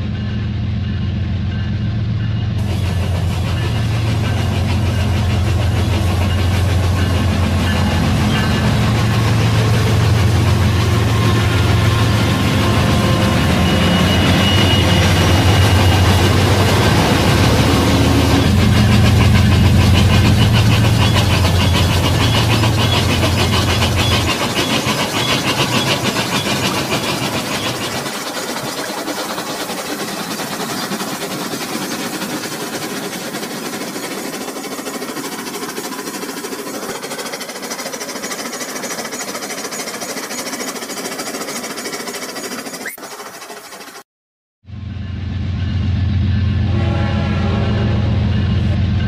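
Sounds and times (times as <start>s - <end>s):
wheels clicking on rails: 2.6s - 44.0s
toy train motors whirring: 18.0s - 44.0s
loud low hum: 44.6s - 49.0s.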